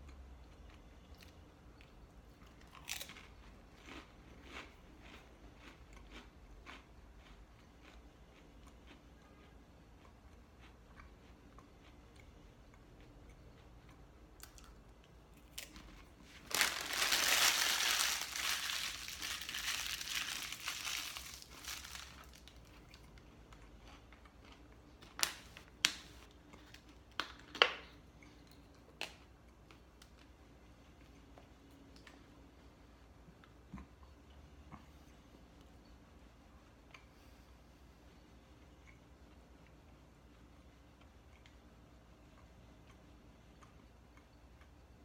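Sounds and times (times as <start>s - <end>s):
wrapping crumpled by hand: 15.6s - 22.7s.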